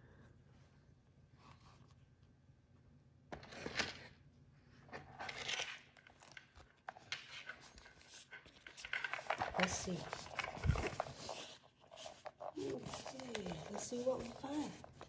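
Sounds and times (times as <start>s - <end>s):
canvas pouch rustling and scraping: 9.6s - 14.8s.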